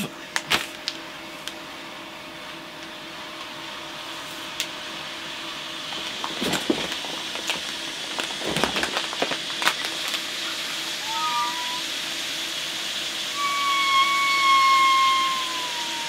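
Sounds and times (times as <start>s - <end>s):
flameless heater hissing: 0.0s - 16.0s
crackles: 5.9s - 11.2s.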